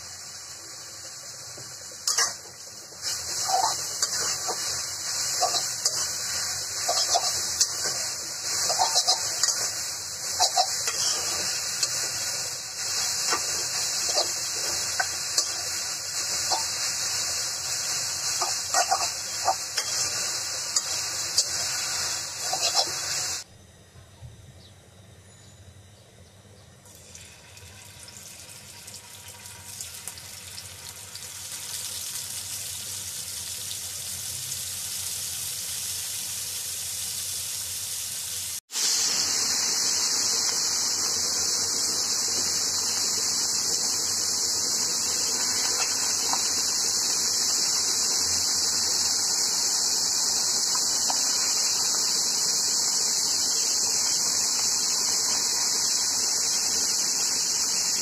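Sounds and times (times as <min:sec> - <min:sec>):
fish sizzling in oil: 0:00.0 - 0:23.4, 0:27.0 - 0:58.0
metal spatula scraping a pan: 0:03.0 - 0:12.0, 0:18.3 - 0:21.7.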